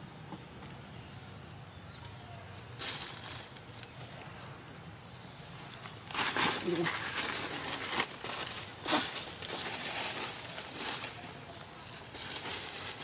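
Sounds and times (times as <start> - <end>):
rustling in dry leaves: 2.1 - 4.8, 5.6 - 13.0.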